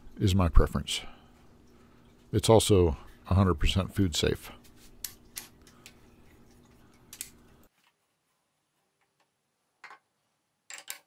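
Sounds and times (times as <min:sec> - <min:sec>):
low steady hum: 0:00.0 - 0:07.7.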